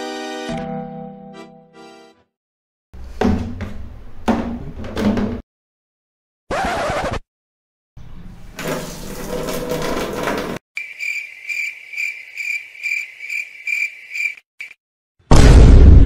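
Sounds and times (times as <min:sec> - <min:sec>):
cricket chirping trill: 0:10.8 - 0:14.8.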